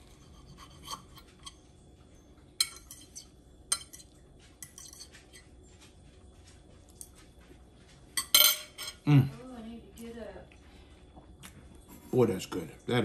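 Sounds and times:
fork clinking and scraping on plate: 0:00.0 - 0:01.6, 0:02.6 - 0:05.6, 0:08.2 - 0:09.0.

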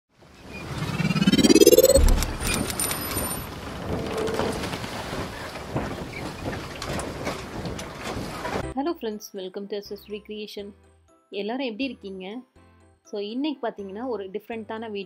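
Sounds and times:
rising sweep: 0:00.5 - 0:02.9.

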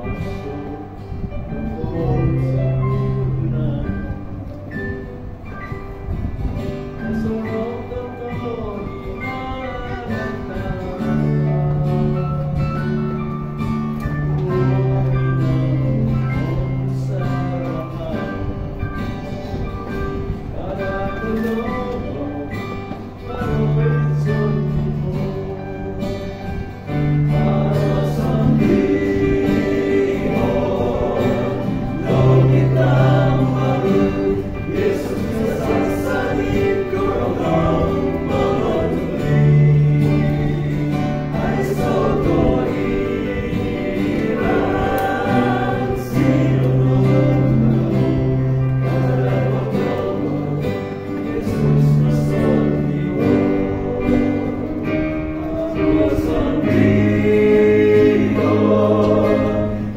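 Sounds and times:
male vocal quartet singing hymn: 0:00.0 - 0:05.1, 0:06.9 - 0:59.9.

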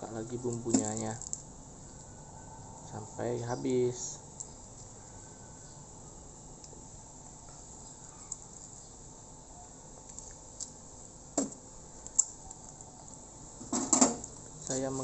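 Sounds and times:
foil sachets crinkling: 0:14.3 - 0:15.0.

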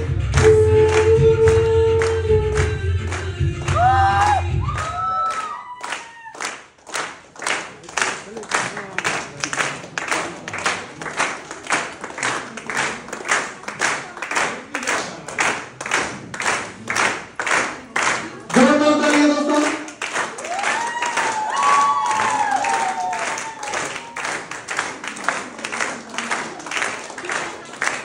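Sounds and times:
crowd clapping in rhythm: 0:00.0 - 0:28.0
loud shouts: 0:20.4 - 0:24.2.

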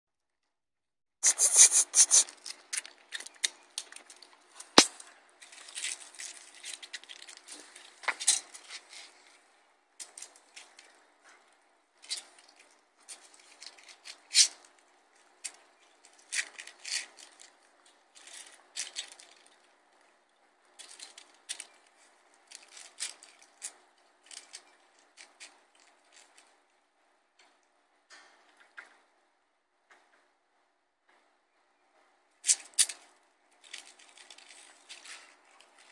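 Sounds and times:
pinecone scraping and crunching: 0:01.2 - 0:09.4, 0:33.6 - 0:35.9.

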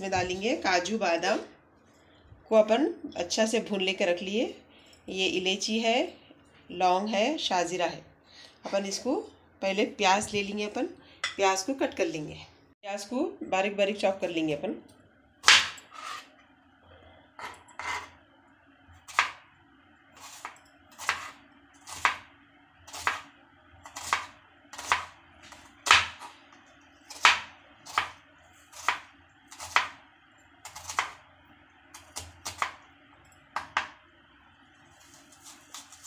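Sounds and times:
knife chopping on wooden board: 0:15.4 - 0:15.8, 0:23.9 - 0:26.3, 0:27.1 - 0:28.2.

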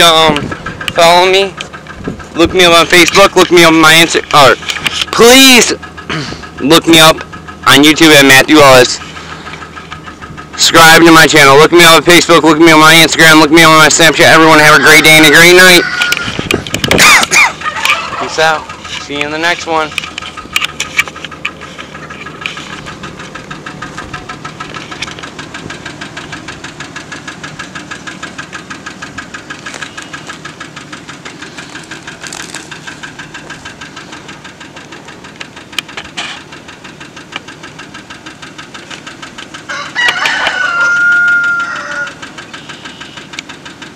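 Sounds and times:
truck engine idling with knock: 0:00.0 - 0:43.9
rooster crowing: 0:15.6 - 0:16.5, 0:17.1 - 0:18.3, 0:39.7 - 0:42.3.

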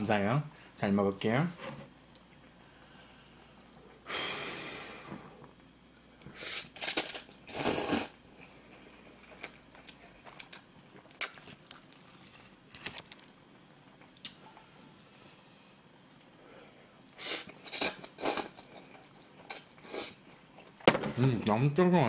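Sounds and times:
slurping noodles: 0:06.4 - 0:08.2.

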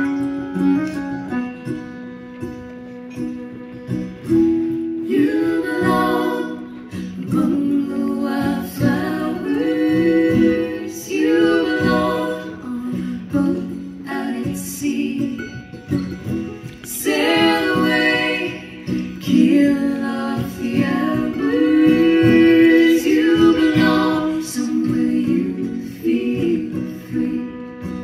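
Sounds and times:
acoustic guitar: 0:00.0 - 0:28.0
fiddle: 0:00.0 - 0:28.0
woman singing: 0:05.0 - 0:15.9, 0:16.8 - 0:28.0.

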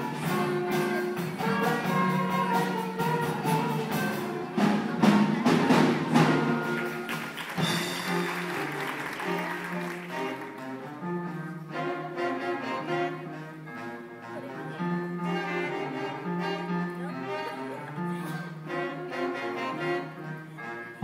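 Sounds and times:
band holding chords: 0:00.0 - 0:21.0
percussion hits: 0:03.4 - 0:09.0.

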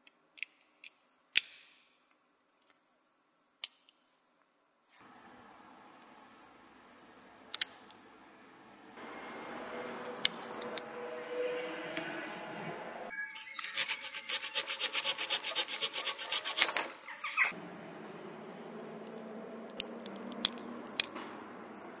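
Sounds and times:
saw rasping through branch: 0:13.6 - 0:17.5
multi-tool metal clicks: 0:19.0 - 0:21.8.

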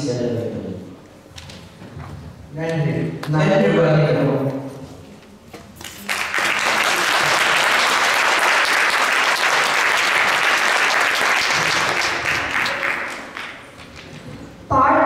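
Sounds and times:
audience applauding: 0:05.8 - 0:14.2.

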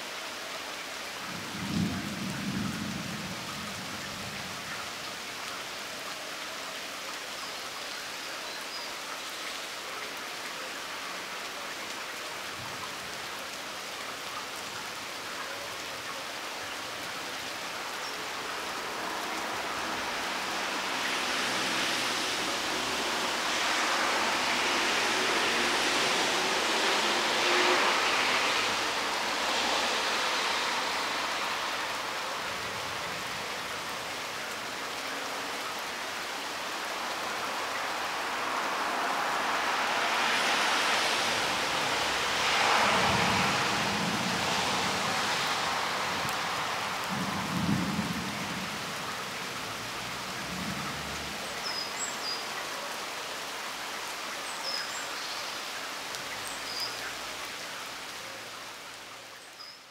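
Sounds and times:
steady rain: 0:00.0 - 0:59.9
traffic hiss on wet road: 0:00.0 - 0:59.9
low thunder rumbles: 0:01.3 - 0:04.5, 0:47.0 - 0:48.9.

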